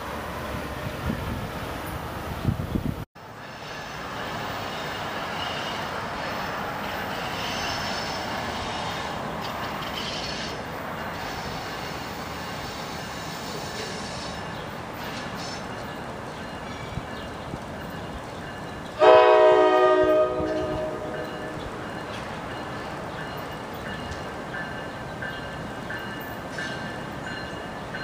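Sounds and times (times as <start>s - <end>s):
train wheels rushing on rail: 0.0s - 28.0s
high wheel squeal: 7.0s - 15.8s.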